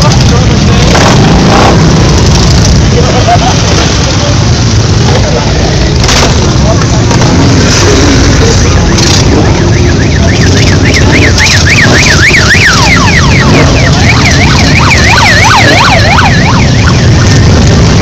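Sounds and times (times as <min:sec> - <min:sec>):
yelping siren: 0:08.0 - 0:18.0
lower-pitched siren: 0:08.4 - 0:18.0.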